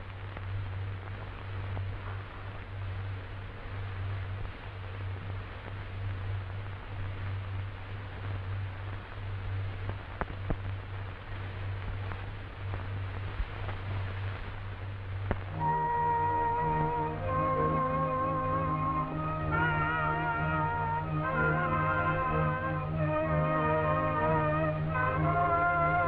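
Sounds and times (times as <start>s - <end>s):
crackling clicks: 0.0s - 15.7s
film soundtrack hiss: 0.0s - 26.0s
music: 0.0s - 26.0s
steady low hum: 0.0s - 26.0s.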